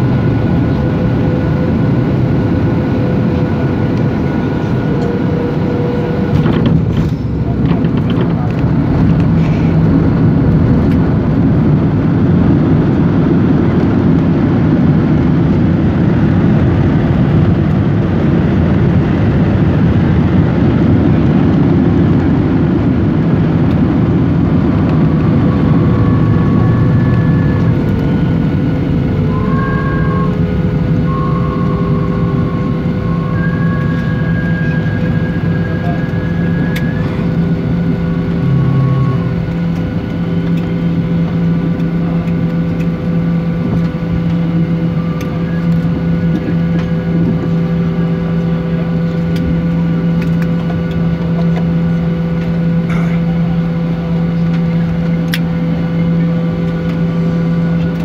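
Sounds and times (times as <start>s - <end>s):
engine and runway noise: 0.0s - 58.0s
thin whining tones: 24.8s - 41.2s.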